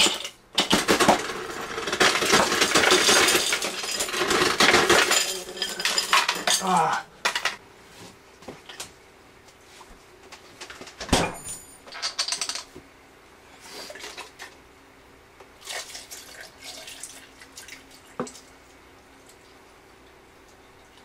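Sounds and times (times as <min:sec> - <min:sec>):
ice cubes rattling in glass: 0:00.0 - 0:06.7
liquid pouring over ice: 0:15.6 - 0:18.2.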